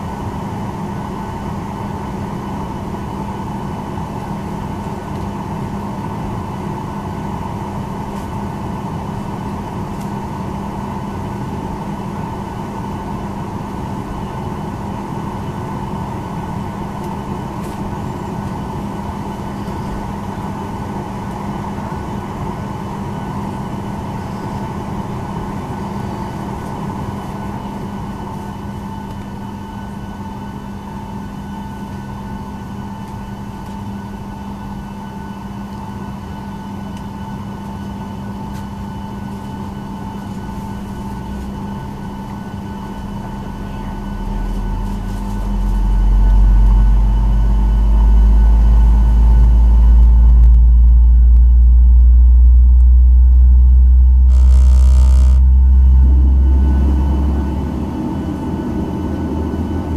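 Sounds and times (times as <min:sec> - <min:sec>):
aircraft systems whining: 0:00.0 - 0:59.9
rush of cabin air: 0:47.2 - 0:59.9.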